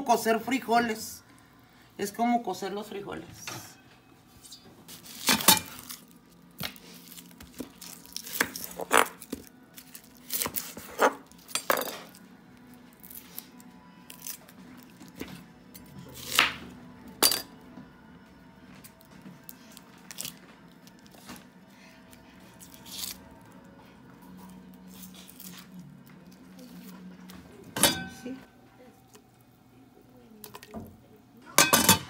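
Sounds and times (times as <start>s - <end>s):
dry onion skin crackling: 4.8s - 15.3s, 18.8s - 23.7s, 24.3s - 27.1s.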